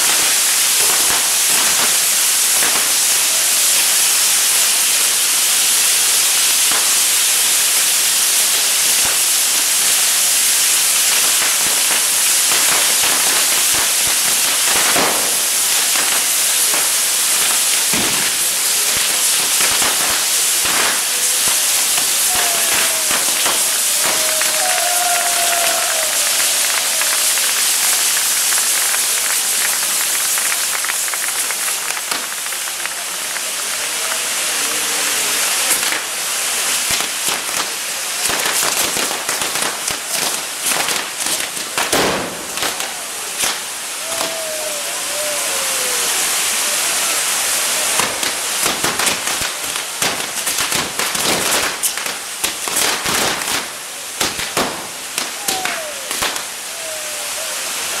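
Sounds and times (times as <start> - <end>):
firework crackles and pops: 0.0 - 58.0
firework fountains hissing: 0.0 - 58.0.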